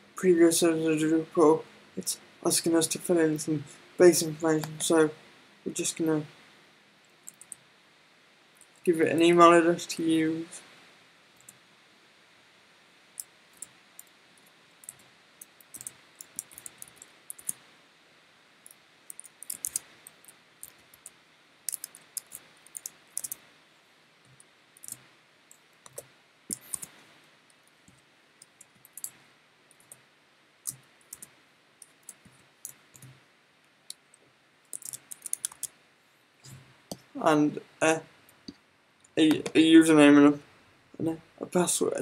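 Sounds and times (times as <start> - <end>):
faint room hum: 0.0 - 42.0
typing on a keyboard: 14.8 - 17.6, 19.1 - 23.4, 25.8 - 26.9, 28.6 - 30.0, 34.7 - 35.7.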